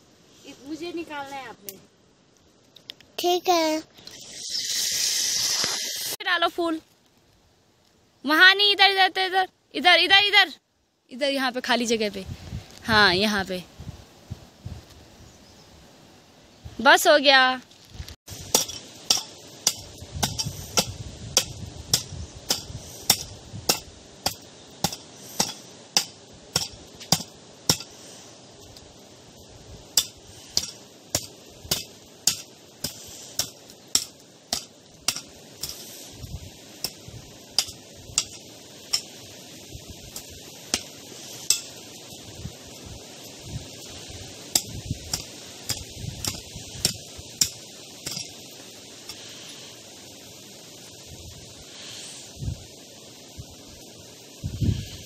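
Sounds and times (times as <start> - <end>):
hoe striking stony soil: 18.4 - 28.0, 29.9 - 36.0, 36.8 - 39.3, 40.1 - 41.8, 44.4 - 49.2.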